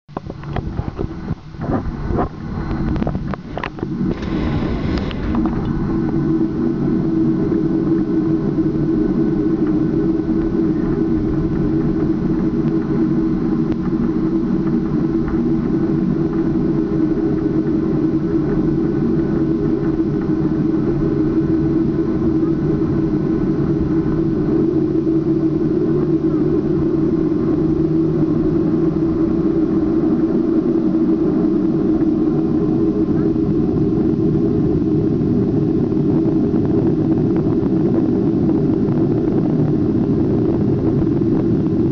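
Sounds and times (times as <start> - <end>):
jet engines droning in cabin: 0.1 - 41.9.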